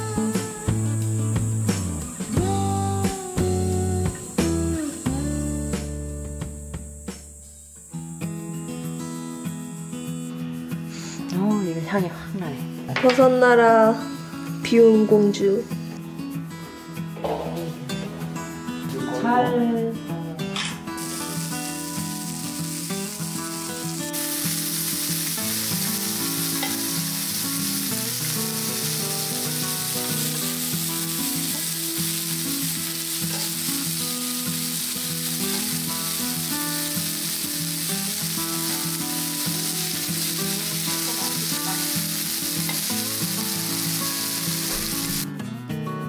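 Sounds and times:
meat sizzling on grill pan: 21.0s - 45.2s.

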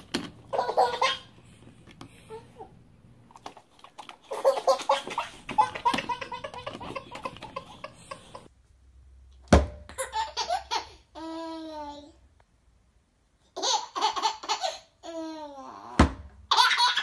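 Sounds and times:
baby belly laughing: 0.5s - 1.4s, 4.2s - 8.5s, 10.0s - 11.8s, 13.6s - 15.7s, 16.5s - 17.0s
second baby laughing: 4.3s - 8.5s.

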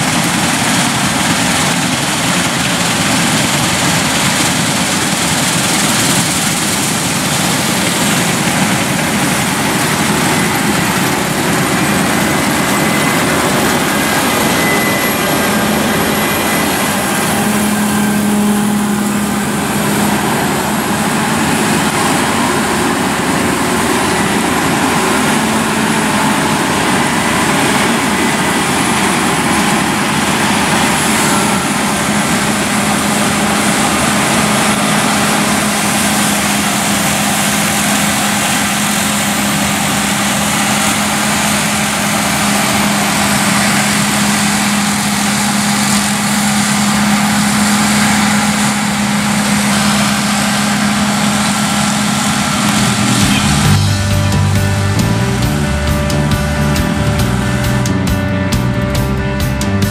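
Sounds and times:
combine harvester running: 0.0s - 59.9s
faint high whine: 7.8s - 37.2s.

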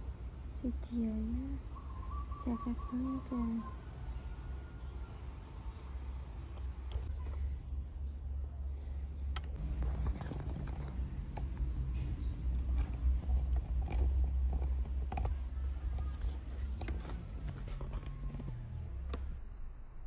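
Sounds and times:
fingers rubbing hair: 0.0s - 1.8s.

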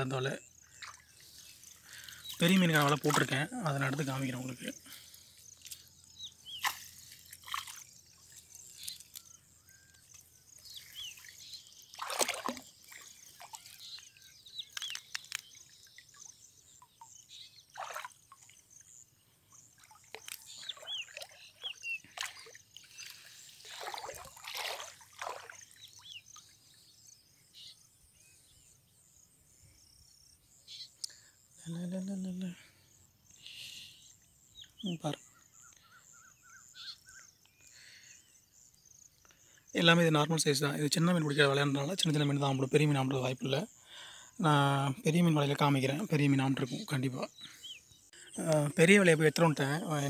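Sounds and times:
water splashing and sloshing: 0.6s - 4.3s, 6.5s - 9.2s, 10.1s - 26.4s
water running off net: 0.8s - 4.3s, 6.5s - 7.9s, 11.1s - 13.7s, 17.8s - 18.2s, 22.1s - 25.6s.

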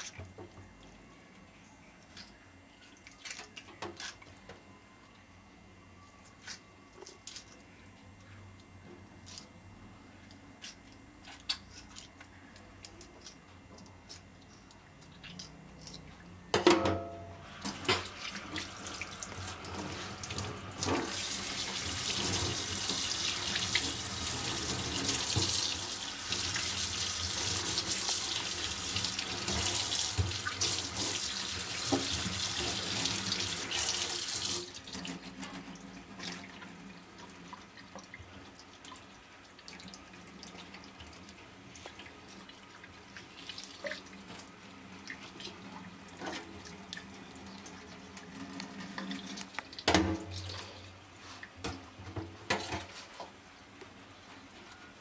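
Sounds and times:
tap water running into sink: 17.6s - 38.5s
splashes and knocks in sink: 49.8s - 50.5s.

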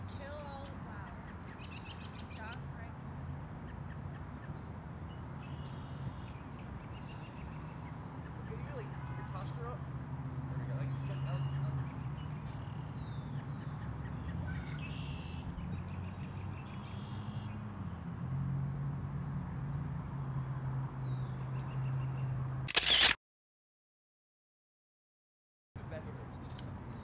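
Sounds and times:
birds chirping: 0.0s - 18.7s, 20.2s - 23.1s, 25.8s - 27.0s
camera shutter clack: 22.7s - 23.2s.

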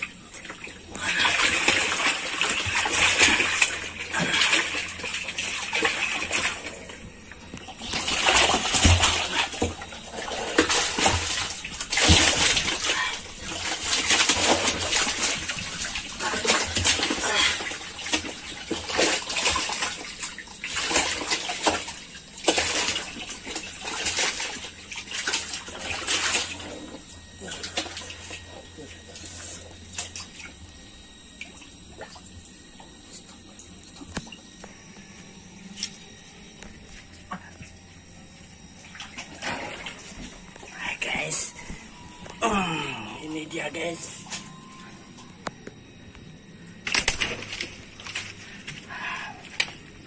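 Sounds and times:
water splashing in plastic drum: 0.0s - 34.5s, 38.7s - 40.7s.

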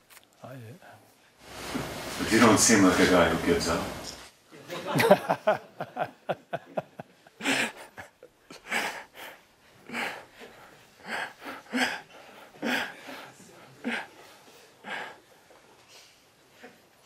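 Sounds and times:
person laughing: 4.9s - 8.1s.

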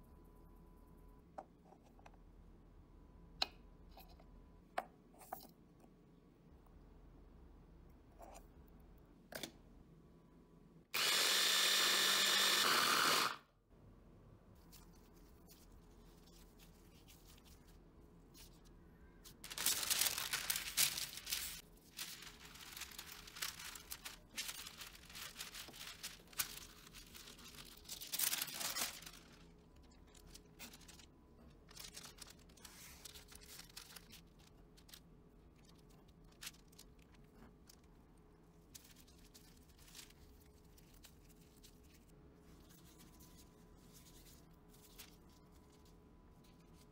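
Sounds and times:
electric food chopper running: 11.0s - 13.4s
baking paper crinkling: 14.6s - 46.9s.

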